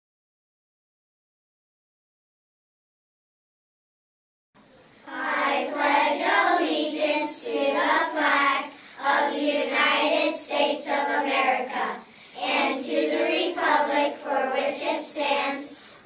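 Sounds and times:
children reciting in unison: 5.1 - 16.0.

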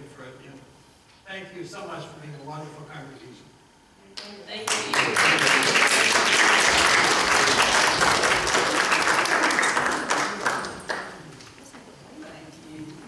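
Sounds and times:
crowd applauding: 4.6 - 11.3.

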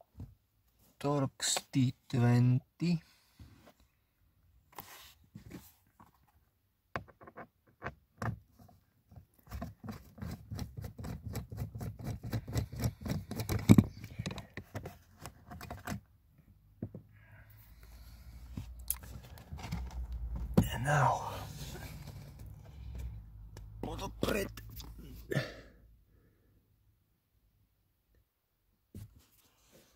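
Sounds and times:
carpet rustling: 17.9 - 25.3.

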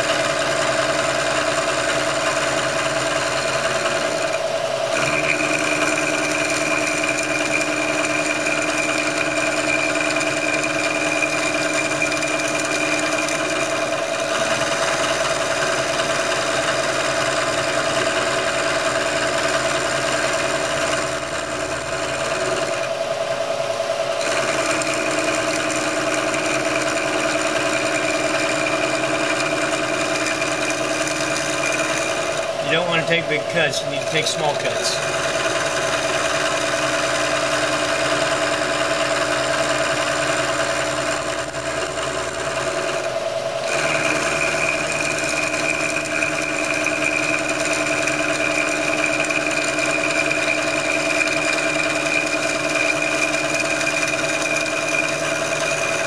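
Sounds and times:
milling machine motor hum: 0.0 - 56.0
high cutting whine: 27.9 - 37.4.

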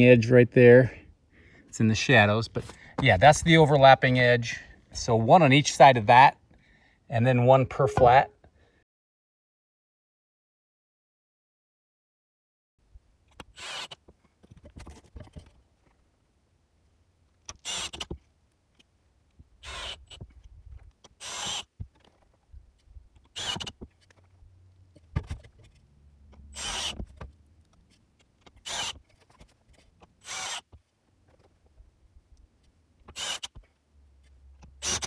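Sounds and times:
power drill driving screws into steel: 13.6 - 14.0, 17.6 - 18.1, 19.6 - 20.2, 21.2 - 21.7, 23.3 - 23.8, 26.5 - 27.1, 28.6 - 29.0, 30.2 - 30.7, 33.1 - 33.6, 34.8 - 35.0.

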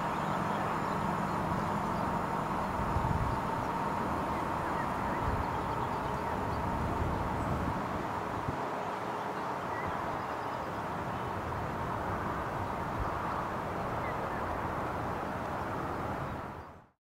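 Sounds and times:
train running gear rumbling: 0.0 - 8.6
faint steady tone: 0.0 - 16.9.

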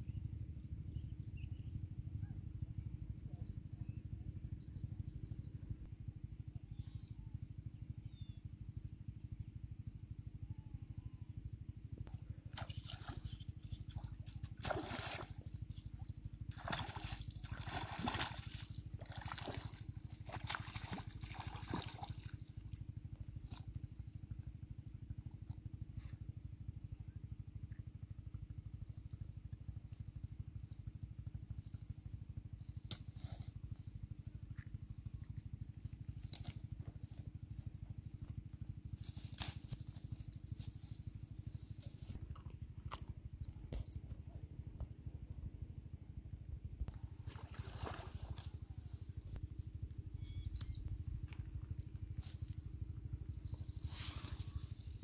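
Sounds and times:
low engine throb: 0.0 - 55.0
faint high bird chirps: 6.5 - 8.6, 50.1 - 51.1.

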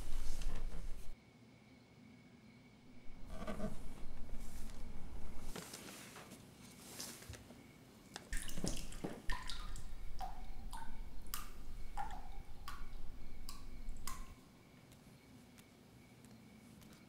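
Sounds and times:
low rumble: 2.9 - 5.5
water dripping plinks: 8.3 - 14.4.

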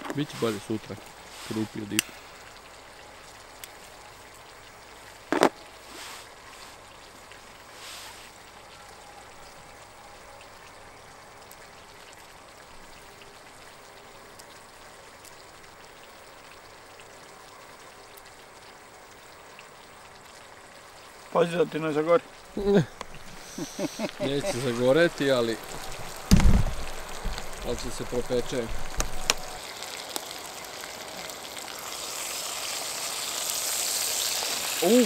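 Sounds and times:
steady hiss: 0.0 - 4.1, 4.9 - 8.9, 21.1 - 35.0
sharp knock: 26.3 - 26.7.

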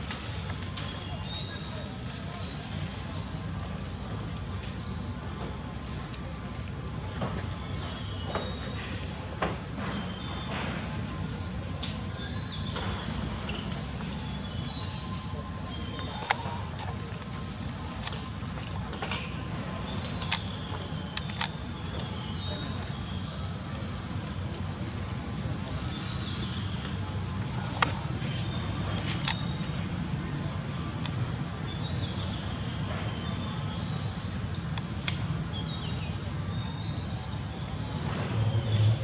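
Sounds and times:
insect chorus drone: 0.0 - 39.0
sharp clicks: 20.0 - 21.6.

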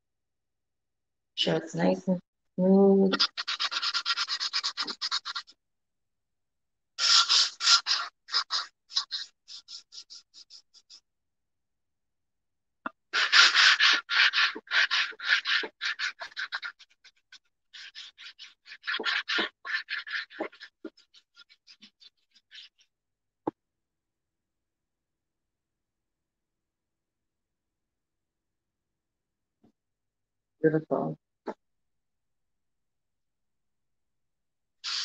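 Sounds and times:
sanding block rasping on pot: 3.1 - 5.6, 7.0 - 11.0, 13.1 - 22.8.

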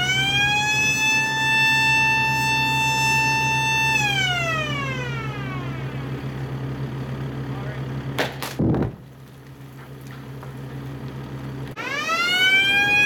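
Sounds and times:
warning siren wailing: 0.0 - 7.3, 11.7 - 13.0
engine running: 0.0 - 13.0.

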